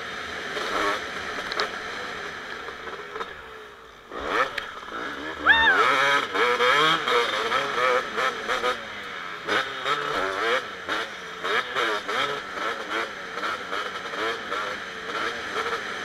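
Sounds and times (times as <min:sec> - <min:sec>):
motocross bike engine revving: 0:04.1 - 0:16.0.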